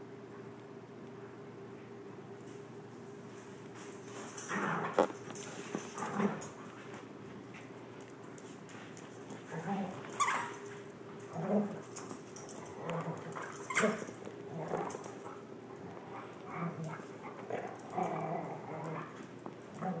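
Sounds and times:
dogs growling and whining: 0:04.3 - 0:06.6, 0:09.3 - 0:20.0.

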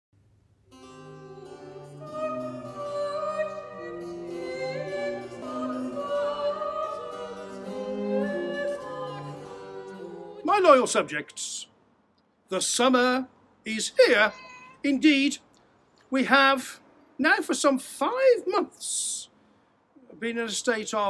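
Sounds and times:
slow classical music: 0:00.7 - 0:10.5.

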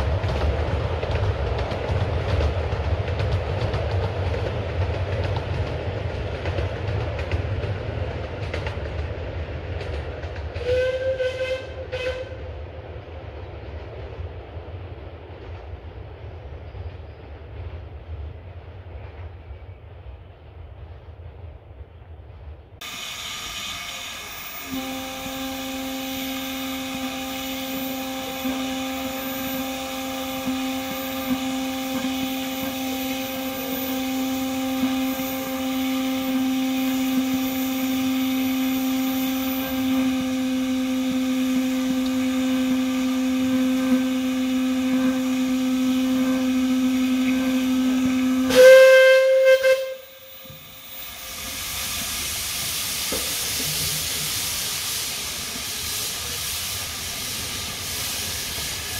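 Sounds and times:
shrill steam whistle blast: 0:22.8 - 0:58.9
steam hissing: 0:22.8 - 0:58.9
steam locomotive letting off steam: 0:22.8 - 0:58.9.

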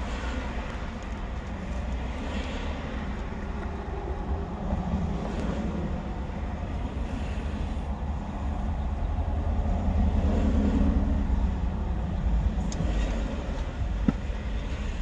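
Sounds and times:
low rumble of street traffic: 0:00.0 - 0:15.0.

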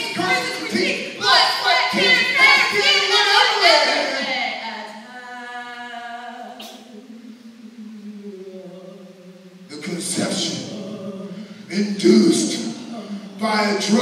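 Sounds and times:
person singing long held note: 0:05.1 - 0:13.3.

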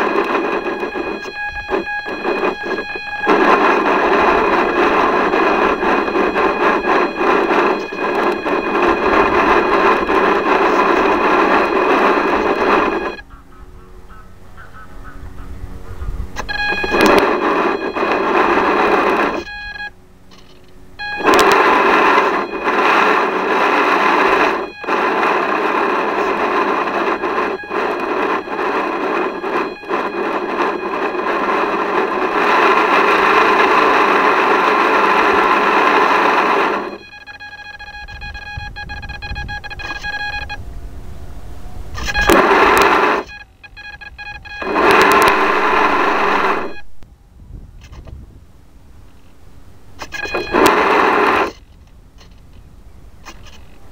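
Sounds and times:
small electric motor buzzing: 0:41.8 - 0:46.8.

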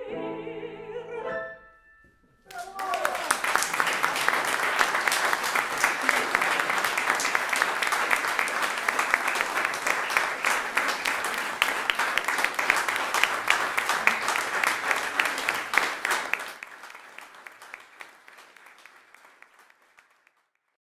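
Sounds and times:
audience applauding: 0:02.5 - 0:20.8.

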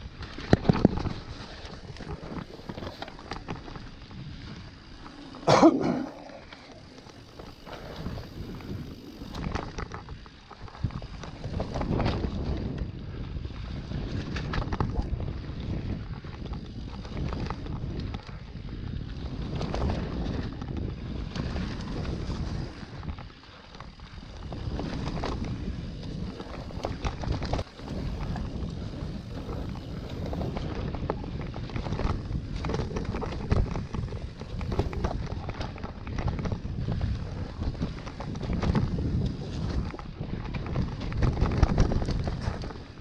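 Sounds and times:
bike rattling and knocking: 0:00.0 - 0:43.0
wind buffeting microphone: 0:00.0 - 0:43.0
tyres rolling over dirt: 0:24.4 - 0:39.8.

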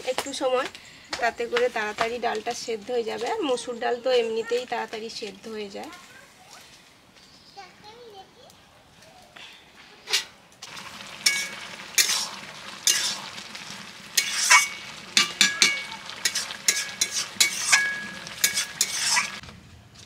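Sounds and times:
metal spatula scraping a pan: 0:10.1 - 0:10.4, 0:11.1 - 0:19.4.

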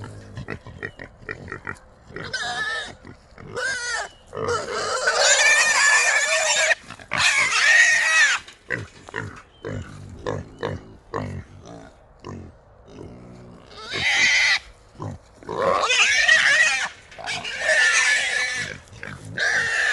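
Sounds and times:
hogs grunting: 0:00.0 - 0:07.8, 0:08.7 - 0:19.9
hogs squealing: 0:02.2 - 0:08.4, 0:13.7 - 0:14.7, 0:15.6 - 0:19.9.

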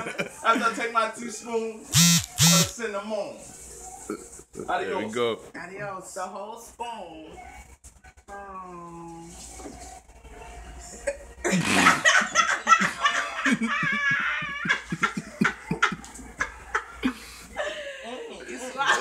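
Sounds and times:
loud laughter: 0:11.5 - 0:17.2.

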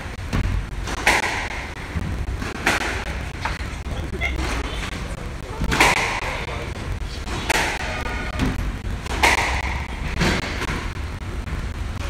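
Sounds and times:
squash ball smacks: 0:00.3 - 0:03.7, 0:05.7 - 0:06.4, 0:07.3 - 0:10.9.

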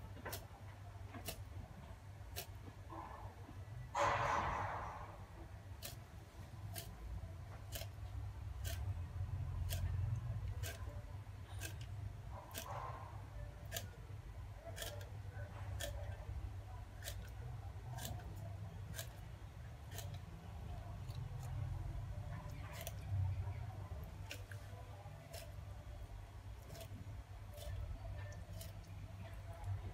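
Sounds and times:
low steady hum: 0:00.0 - 0:29.9
knife scraping fish scales: 0:08.6 - 0:09.0, 0:09.6 - 0:14.0, 0:14.6 - 0:16.2, 0:17.0 - 0:21.7.

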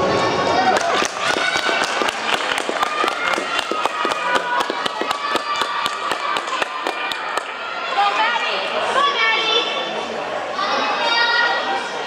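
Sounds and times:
spectators clapping: 0:00.6 - 0:07.6.

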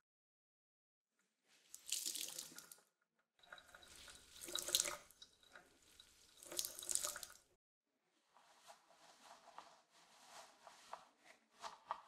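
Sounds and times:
water splashing into a sink: 0:01.7 - 0:07.6.

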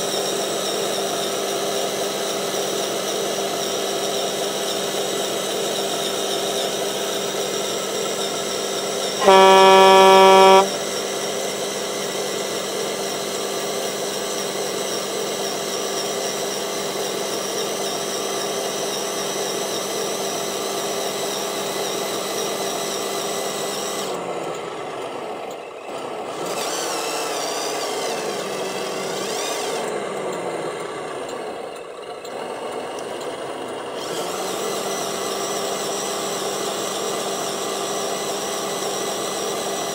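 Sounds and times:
electric motor whining: 0:09.2 - 0:10.8
truck horn blast: 0:09.2 - 0:10.8.

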